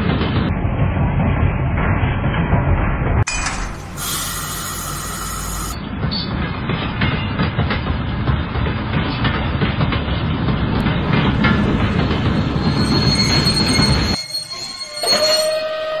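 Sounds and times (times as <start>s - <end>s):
thin high whine: 3.3s - 5.8s, 11.4s - 15.8s
model train rumble: 3.7s - 5.8s.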